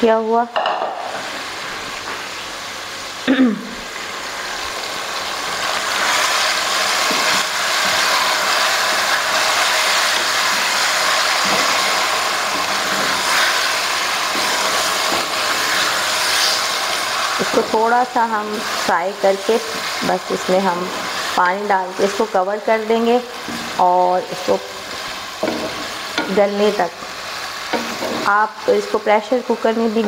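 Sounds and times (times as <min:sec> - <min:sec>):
meat sizzling in hot oil: 0:00.0 - 0:30.0
wooden spatula scraping a pan: 0:06.0 - 0:17.1, 0:27.7 - 0:28.4.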